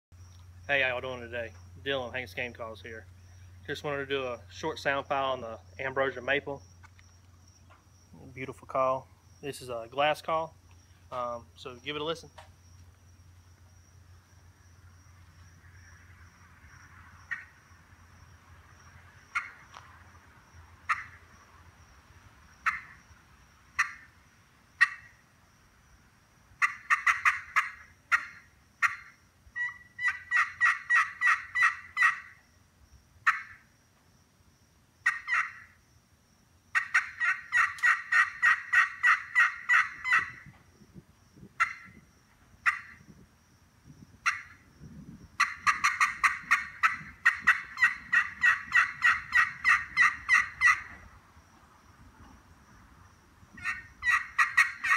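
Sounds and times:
turkey call clucks: 19.4 - 19.6, 20.9 - 21.2, 22.6 - 23.0, 23.8 - 24.1, 24.8 - 25.2, 26.6 - 32.4, 33.2 - 33.6, 35.0 - 35.7, 36.7 - 40.4, 41.6 - 41.9, 42.6 - 43.0, 44.2 - 44.6, 45.4 - 51.0, 53.6 - 54.9
turkey call yelps: 19.4 - 19.6, 20.9 - 21.2, 22.6 - 23.0, 23.8 - 24.1, 24.8 - 25.2, 26.6 - 32.4, 33.2 - 33.6, 35.0 - 35.8, 36.7 - 40.4, 41.6 - 41.9, 42.6 - 43.0, 44.2 - 44.6, 45.4 - 51.0, 53.6 - 54.9.

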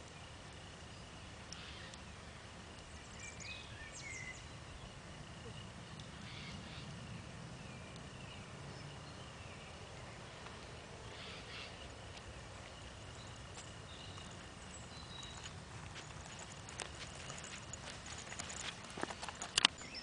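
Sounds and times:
bird chirps: 12.6 - 20.0.

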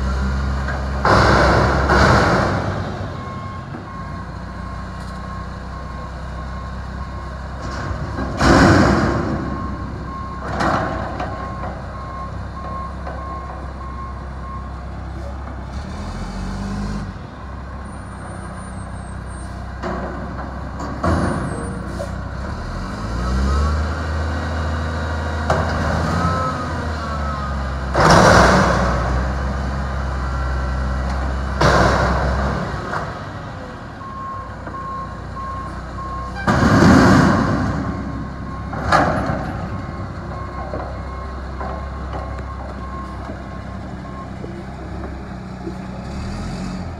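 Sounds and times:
diesel engine revving: 0.0 - 46.9
trash crashing into truck: 1.0 - 3.1, 7.6 - 11.5, 31.5 - 33.2, 36.4 - 39.9.

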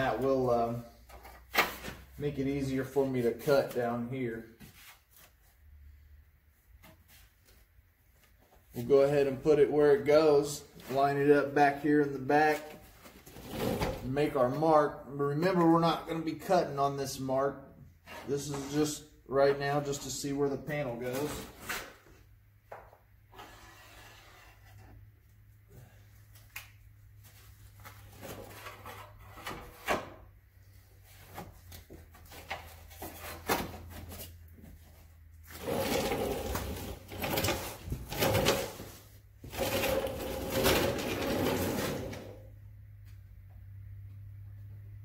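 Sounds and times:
metal scraping and rubbing: 35.5 - 42.5.

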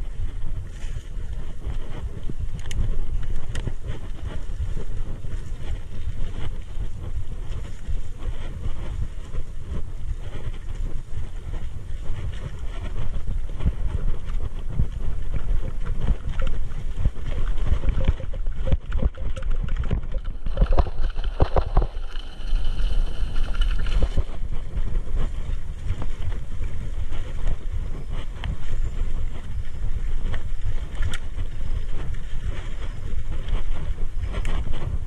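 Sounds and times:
wind buffeting microphone: 0.0 - 35.0
bike rattling and knocking: 12.1 - 27.8.

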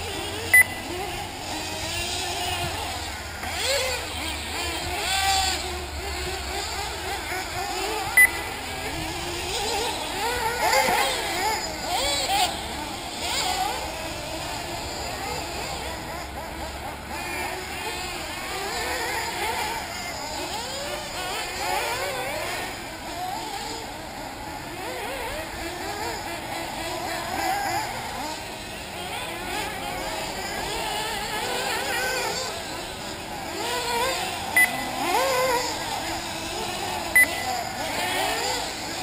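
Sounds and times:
small engines buzzing and revving: 0.0 - 39.0
short electronic beep: 0.5 - 0.8, 8.2 - 8.4, 34.6 - 34.9, 37.2 - 37.5.

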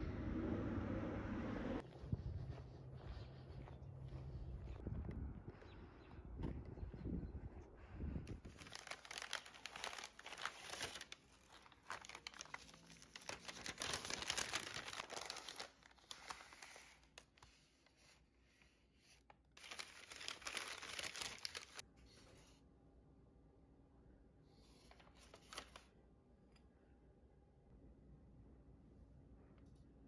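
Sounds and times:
tissue paper crinkling: 8.4 - 18.2, 19.0 - 21.8.

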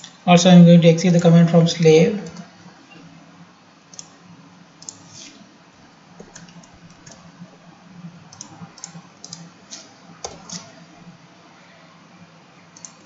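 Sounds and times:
mouse and keyboard clicks: 8.4 - 9.5.

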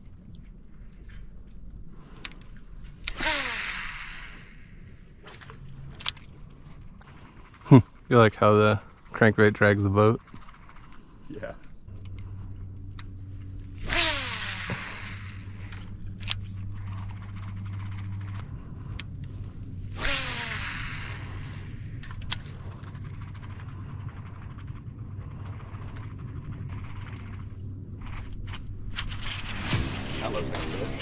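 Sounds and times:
reel clicks: 0.0 - 8.0, 10.2 - 29.3
steady low hum: 0.0 - 31.0
reel spool whine: 3.0 - 29.6
fishing line whooshing out: 28.9 - 31.0.

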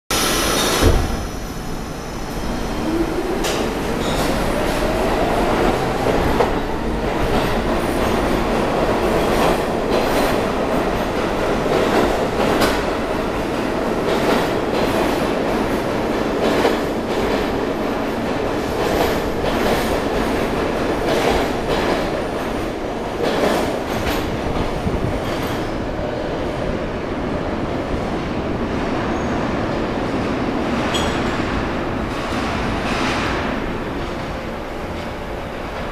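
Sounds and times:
subway train motor whine: 0.1 - 9.0.

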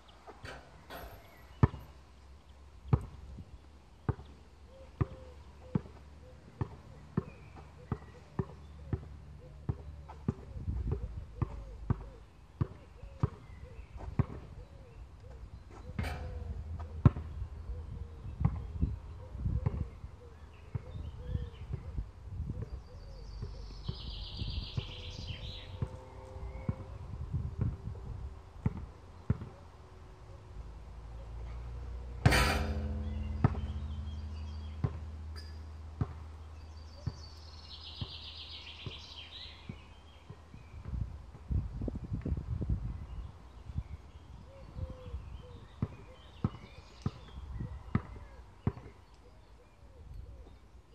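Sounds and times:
ball clattering on hoop: 0.3 - 1.9, 15.7 - 17.4, 32.2 - 36.2
basketball bouncing on court: 1.5 - 1.9, 4.1 - 4.4, 5.0 - 13.4, 15.7 - 18.7, 32.2 - 36.4, 47.9 - 48.9.

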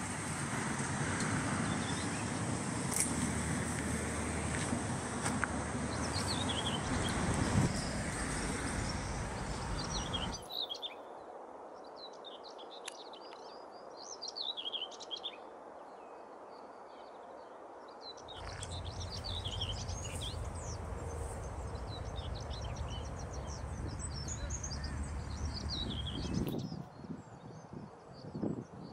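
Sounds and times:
steady outdoor rushing noise: 0.0 - 10.4, 18.3 - 26.8
small birds chirping: 5.9 - 11.0, 18.3 - 26.9.

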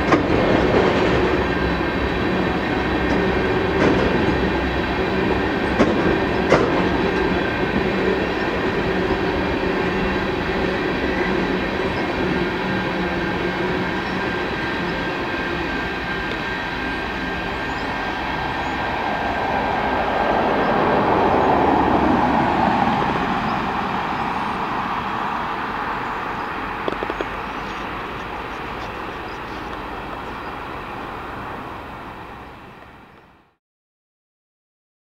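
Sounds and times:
tank cars rolling on track: 0.0 - 31.3.

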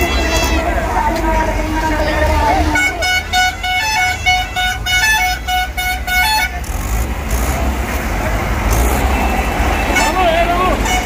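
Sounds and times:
electronic vehicle horn beeping: 0.0 - 0.9, 2.5 - 6.7, 8.7 - 11.0
outdoor crowd noise: 0.0 - 11.0
traffic noise: 0.0 - 11.0.

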